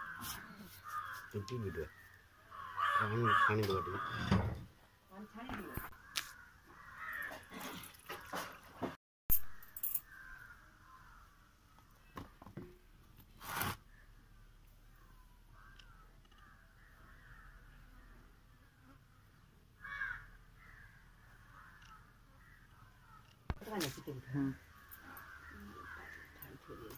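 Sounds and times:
crows cawing: 0.0s - 4.6s, 5.9s - 8.4s, 10.0s - 12.3s, 15.5s - 26.9s.

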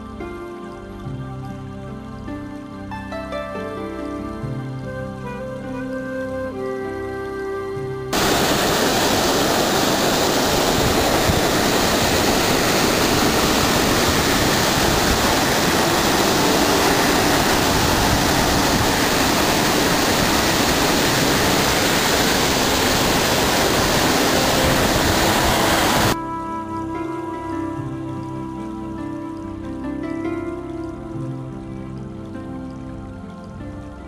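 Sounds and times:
waterfall roaring: 8.1s - 31.0s.

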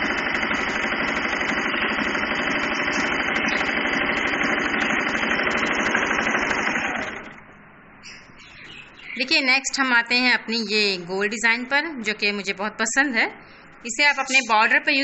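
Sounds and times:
electric sewing machine running: 0.0s - 7.4s.

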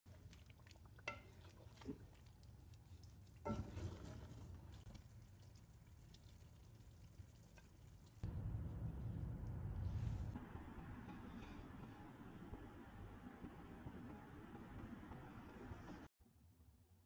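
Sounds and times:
spatula stirring curry in a pot: 0.1s - 8.2s
spatula knocking and scraping pot: 1.0s - 2.0s, 3.4s - 4.9s.

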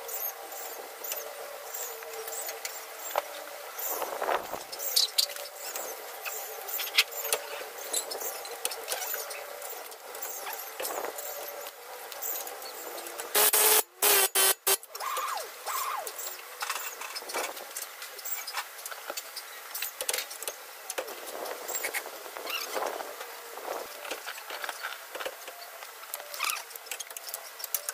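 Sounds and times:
harsh burst of noise: 13.3s - 16.0s
sharp metallic clicks: 13.4s - 14.9s.

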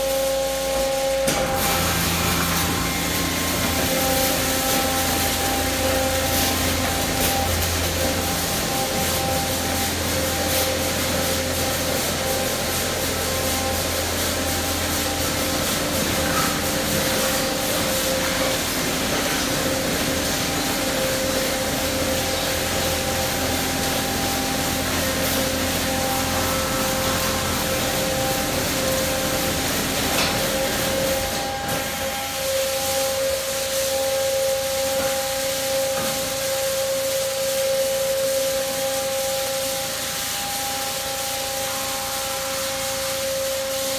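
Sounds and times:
machine whine: 0.0s - 43.9s
water spray: 0.0s - 43.9s.

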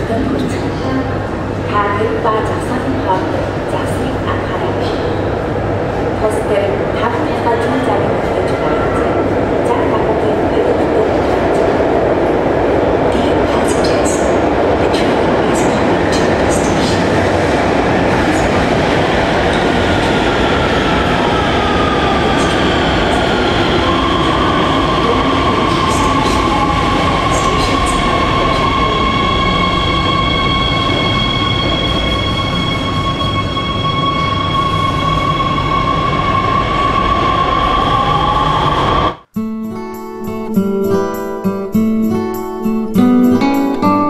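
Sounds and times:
subway train rumble with whine: 0.0s - 39.3s
high-pitched brake squeal: 27.4s - 38.1s.

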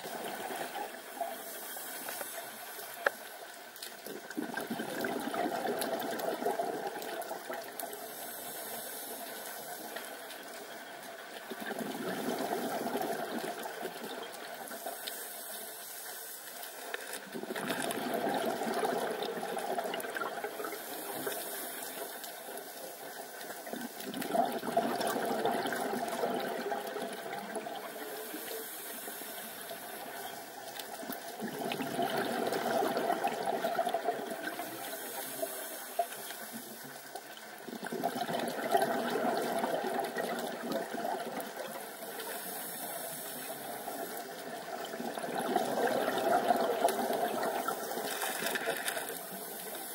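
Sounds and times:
regulator hiss on inhale: 0.0s - 3.8s, 7.0s - 11.0s, 12.2s - 18.0s, 18.8s - 24.1s, 25.5s - 31.3s, 34.3s - 37.5s, 41.5s - 44.7s, 46.7s - 49.9s
bubbling exhaust underwater: 4.2s - 9.2s, 11.5s - 14.6s, 17.3s - 22.2s, 23.6s - 30.1s, 31.0s - 36.2s, 37.6s - 49.9s.

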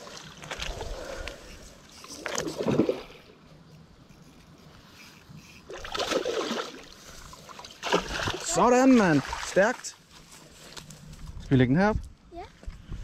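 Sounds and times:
fish splashing in water: 5.7s - 9.6s.

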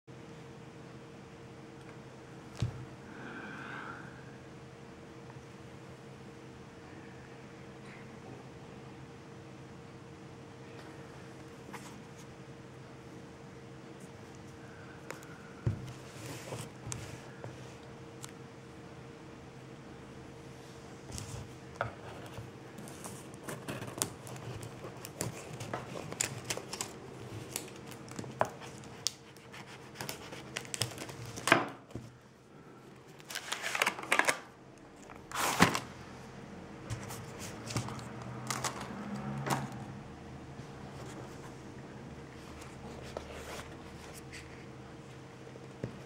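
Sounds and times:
plastic wrap crinkling: 22.9s - 31.5s, 33.2s - 35.9s.

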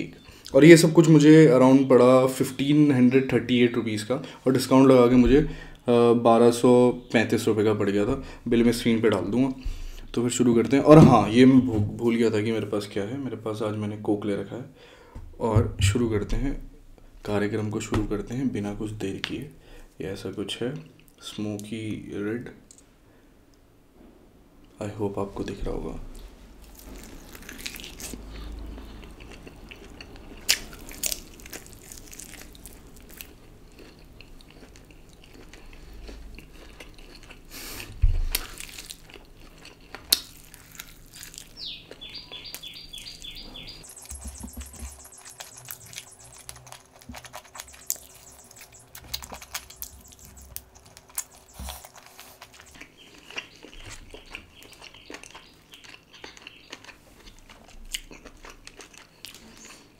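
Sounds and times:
person chewing chicken: 26.6s - 59.9s.

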